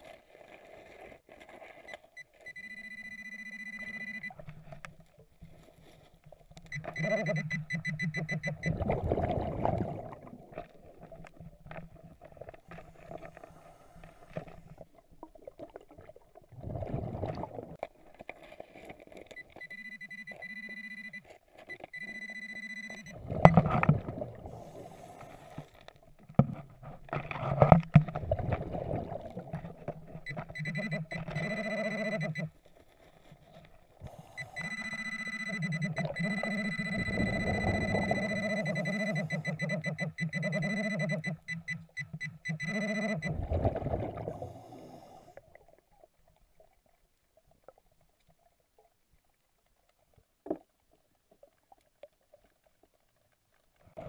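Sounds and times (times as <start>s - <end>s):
high electronic tone underwater: 1.9s - 4.4s, 6.7s - 10.2s, 19.4s - 24.4s, 30.1s - 32.5s, 34.2s - 44.5s
scuba exhalation bubbles: 8.4s - 12.5s, 14.7s - 17.8s, 23.1s - 25.6s, 28.1s - 30.2s, 35.5s - 41.0s, 42.6s - 45.7s.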